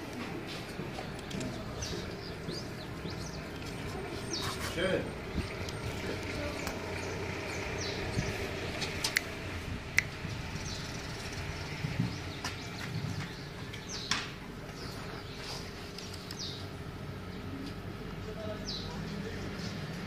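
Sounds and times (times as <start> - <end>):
bird chirps: 1.2 - 9.4, 10.0 - 16.7.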